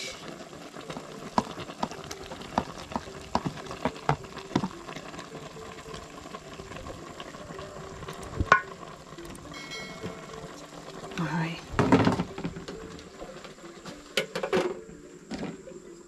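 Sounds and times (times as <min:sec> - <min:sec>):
pot simmering: 0:00.0 - 0:16.0
wooden spoon tapping and scraping: 0:01.3 - 0:04.8.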